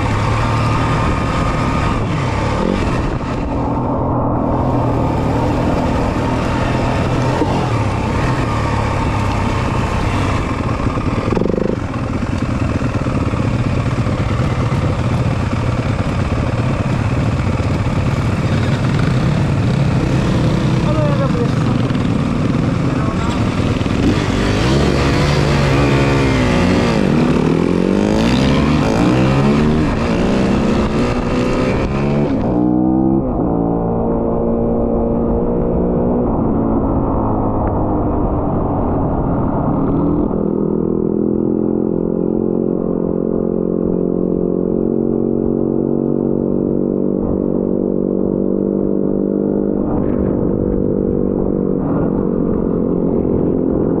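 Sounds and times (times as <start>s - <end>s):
off-road motorcycle engine revving: 0.0s - 38.3s, 39.8s - 54.0s.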